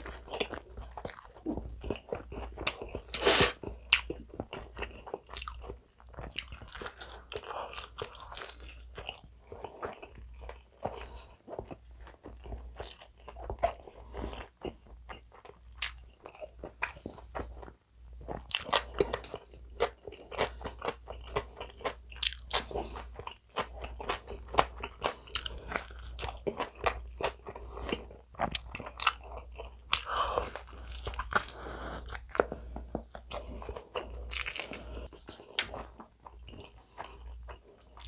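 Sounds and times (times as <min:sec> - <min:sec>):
crunchy chewing: 0:00.0 - 0:38.0.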